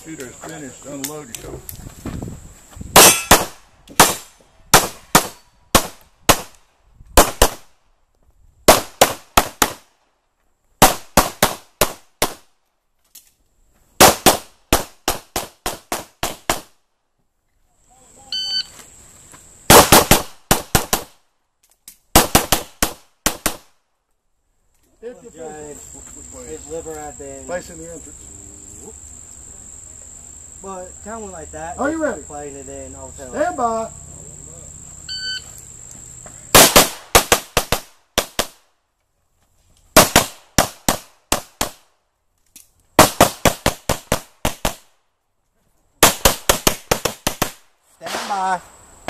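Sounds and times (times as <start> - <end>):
pistol shots: 3.0 - 6.5, 19.7 - 21.2, 22.1 - 23.7, 36.6 - 38.6, 40.0 - 41.8
shot timer beep: 18.4 - 18.7, 35.1 - 35.4.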